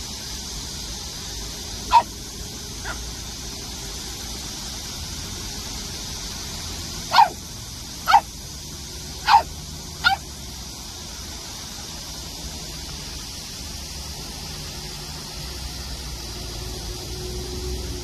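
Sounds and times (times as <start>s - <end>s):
steady high hiss: 0.0s - 18.0s
puppy barking: 1.9s - 2.1s, 2.8s - 3.0s, 7.1s - 7.4s, 8.0s - 8.3s, 9.2s - 10.2s.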